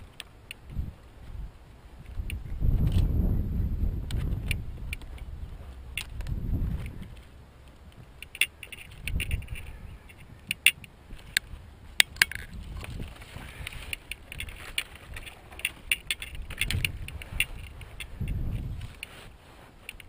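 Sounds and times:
bundle swishing across grass: 0:16.9 - 0:20.0.

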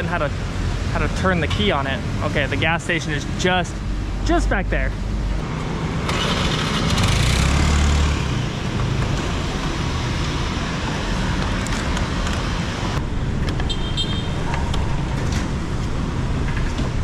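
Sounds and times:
road traffic noise: 0:00.0 - 0:17.0
scooter engine: 0:05.4 - 0:13.0.

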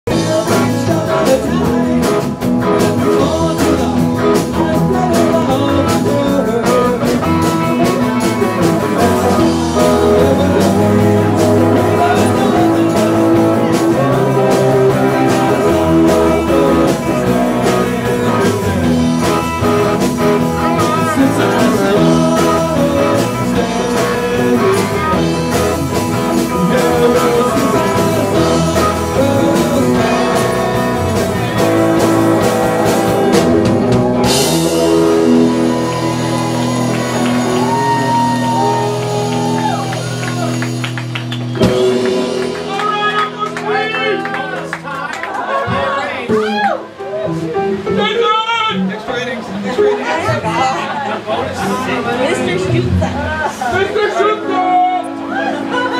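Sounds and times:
man singing: 0:00.0 - 0:39.0
electric guitars: 0:00.1 - 0:48.1, 0:48.7 - 0:55.9.

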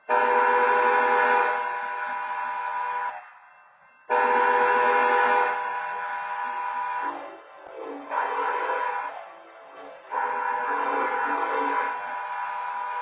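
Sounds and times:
railroad horn blasts: 0:00.0 - 0:03.4, 0:04.1 - 0:13.0.

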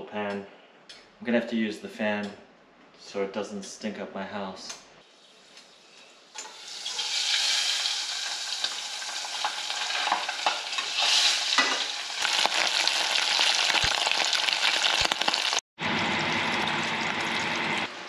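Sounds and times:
fish frying with crackles: 0:05.7 - 0:17.9.

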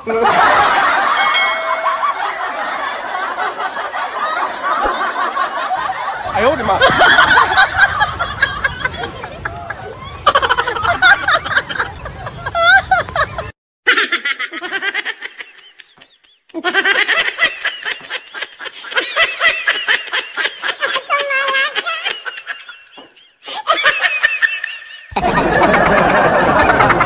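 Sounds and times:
high-pitched laughter: 0:06.8 - 0:27.0.

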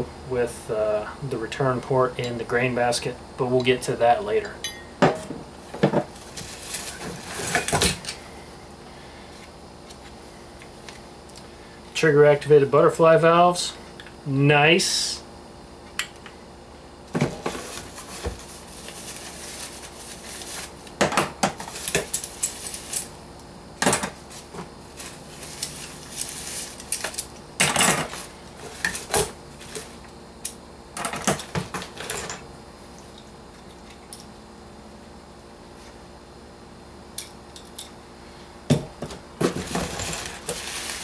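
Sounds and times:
paper and plastic rustling: 0:06.1 - 0:07.7, 0:17.3 - 0:20.8, 0:21.6 - 0:23.1, 0:24.2 - 0:27.3, 0:39.4 - 0:41.0.

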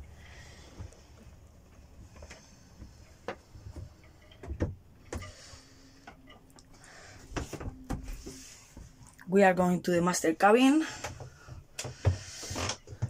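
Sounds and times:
footsteps in a cabin: 0:00.0 - 0:09.2, 0:10.9 - 0:13.0
faint steady hum: 0:00.0 - 0:13.0.

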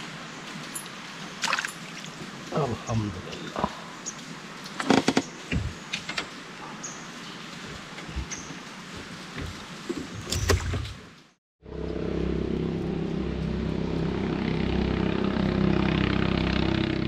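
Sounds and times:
small boat engine running: 0:11.6 - 0:17.0.

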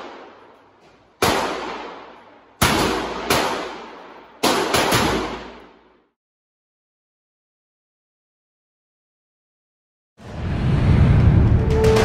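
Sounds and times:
rifle shots echoing: 0:00.0 - 0:00.6, 0:01.2 - 0:06.0.

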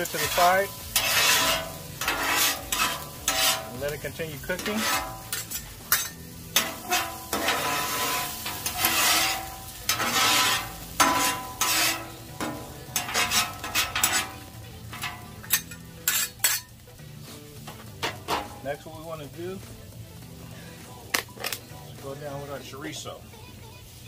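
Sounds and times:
steel spatulas scraping on griddle: 0:00.0 - 0:19.0
meat sizzling: 0:00.0 - 0:24.0.

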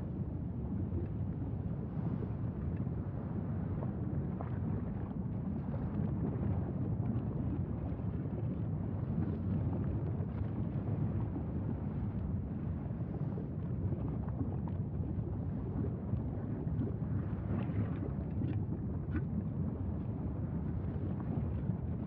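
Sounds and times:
wind noise on microphone: 0:00.0 - 0:22.0
crackles and pops: 0:13.6 - 0:22.0.

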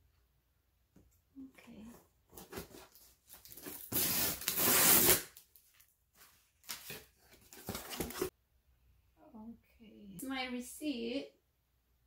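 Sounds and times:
scissors slitting packing tape: 0:03.9 - 0:05.4
cardboard flaps scraping and rustling: 0:06.8 - 0:08.3.

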